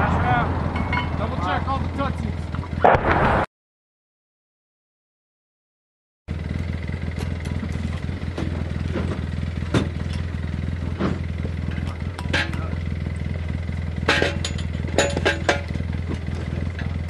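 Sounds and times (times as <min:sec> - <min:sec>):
utility vehicle engine idling: 0:00.0 - 0:02.9, 0:06.3 - 0:17.0.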